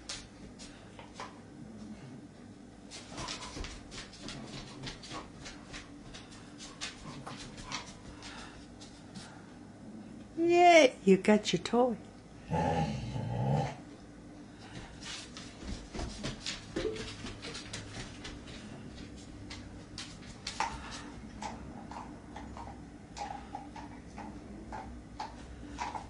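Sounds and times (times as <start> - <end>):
dog claws clicking on floor: 3.0 - 9.3, 15.2 - 26.0.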